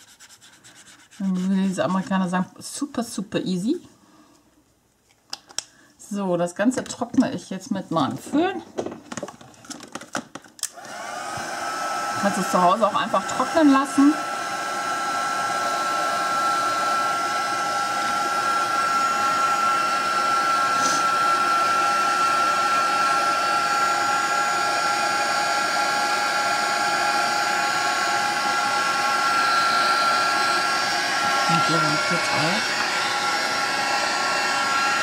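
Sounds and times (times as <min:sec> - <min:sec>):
heat tool blowing air with whine: 0:10.8 - 0:35.0.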